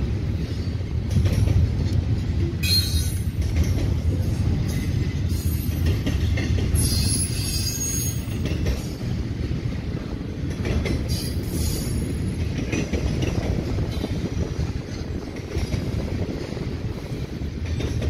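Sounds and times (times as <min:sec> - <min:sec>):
freight train rumbling past: 0:00.0 - 0:18.0
wheel squeal: 0:06.8 - 0:08.3.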